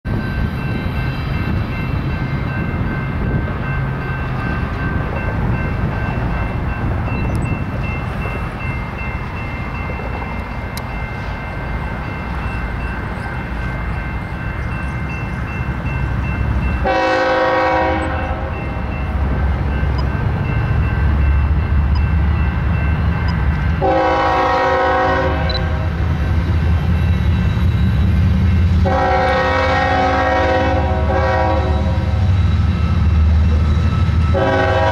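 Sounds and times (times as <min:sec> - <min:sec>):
diesel locomotives rumbling: 0:00.0 - 0:34.9
locomotive air horn blasts: 0:16.8 - 0:18.6, 0:23.8 - 0:25.9, 0:28.8 - 0:32.2, 0:34.3 - 0:34.9.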